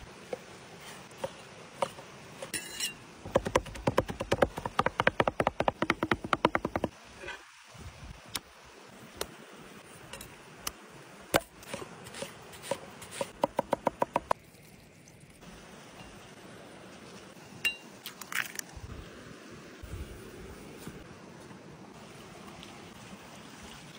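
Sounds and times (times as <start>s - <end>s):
cleaver chopping on wooden board: 3.3s - 6.9s, 13.2s - 14.3s.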